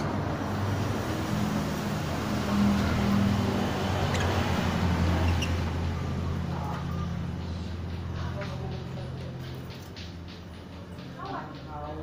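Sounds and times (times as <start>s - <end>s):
bird chirping: 3.5s - 12.0s.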